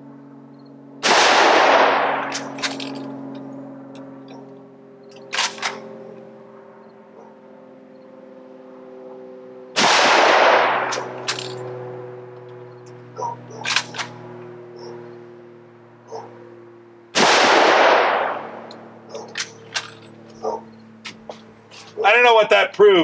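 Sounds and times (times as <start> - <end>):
rifle shot with echo: 1.0 - 2.8, 9.8 - 11.4, 17.2 - 19.7
rifle bolt clicks: 13.6 - 14.1.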